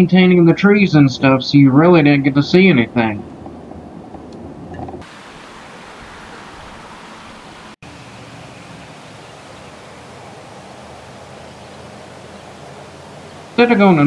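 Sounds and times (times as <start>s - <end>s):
outdoor ambience hiss: 0.0s - 14.0s.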